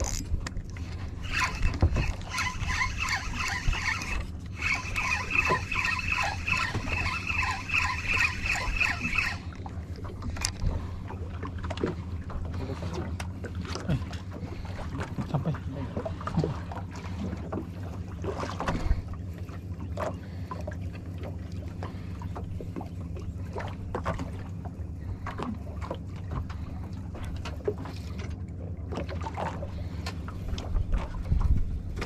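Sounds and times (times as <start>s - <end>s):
boat engine running at low revs: 0.0s - 32.0s.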